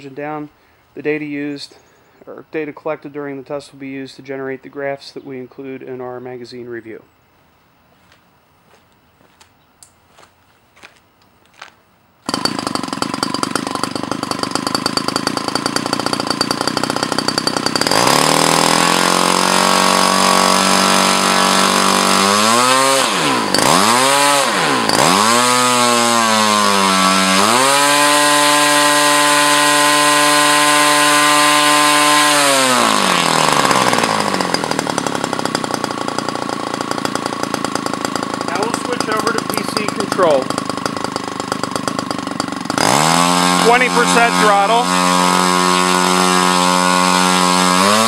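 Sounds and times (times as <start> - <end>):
model two-stroke engine revving: 12.3 - 48.0.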